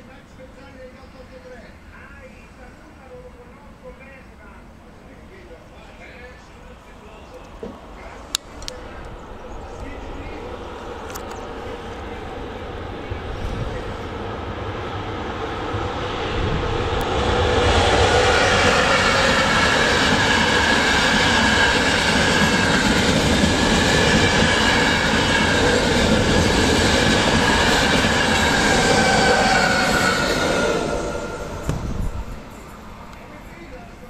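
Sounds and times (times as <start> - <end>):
train wheels rumbling on rails: 7.4 - 34.0
high wheel whine: 8.6 - 33.3.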